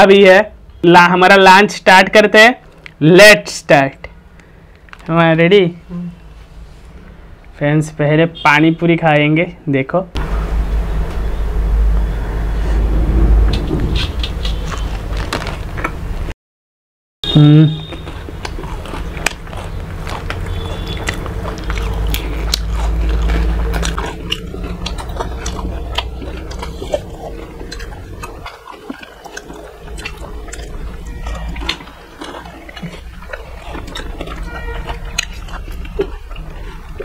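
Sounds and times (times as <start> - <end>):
low rumble: 10.2 - 15.9, 19.2 - 37.0
crunchy food chewing: 14.0 - 16.0, 17.8 - 37.0
wet mouth sounds: 17.6 - 37.0.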